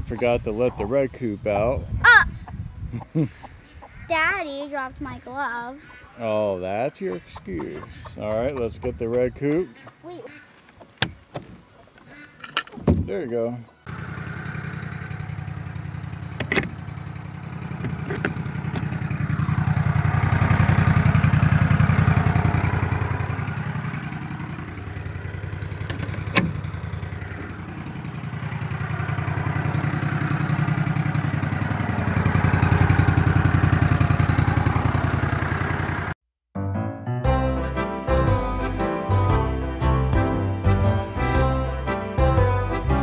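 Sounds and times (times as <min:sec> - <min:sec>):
utility vehicle engine running: 0:13.8 - 0:36.2
tow hook metal clanks: 0:17.6 - 0:19.1, 0:25.6 - 0:27.0.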